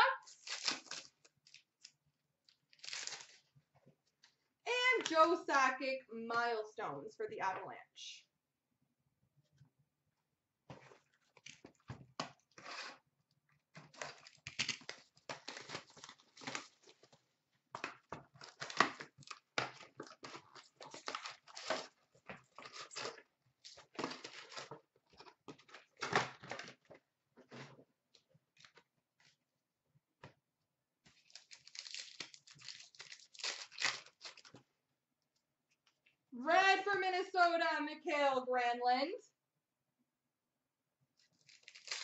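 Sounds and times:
wrappers tearing and crinkling: 0:00.3 - 0:01.9, 0:02.7 - 0:03.5, 0:13.8 - 0:17.1, 0:18.4 - 0:24.7, 0:31.2 - 0:34.5, 0:41.3 - 0:42.0.

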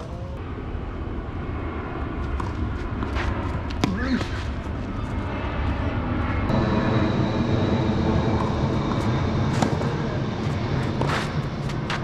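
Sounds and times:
low engine drone: 0:00.0 - 0:12.0
thin high whine: 0:04.2 - 0:11.7.

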